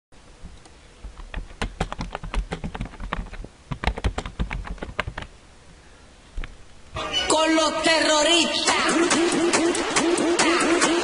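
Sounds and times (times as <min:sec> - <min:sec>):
keyboard typing: 0:01.3 - 0:05.3.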